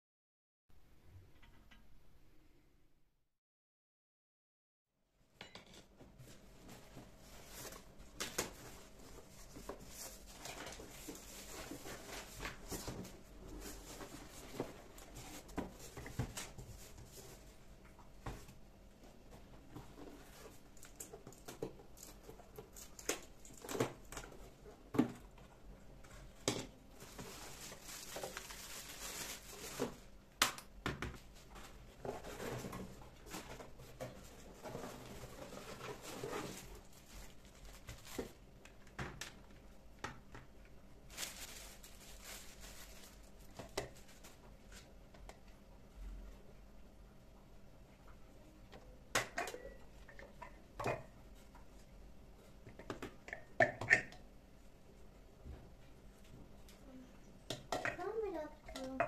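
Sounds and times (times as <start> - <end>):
rustling and crinkling: 5.9 - 30.2, 31.1 - 46.4.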